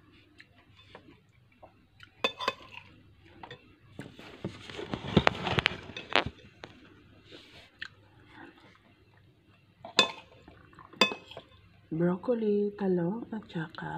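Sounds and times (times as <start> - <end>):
cutlery clinking against bowl: 2.1 - 3.7, 9.8 - 11.6.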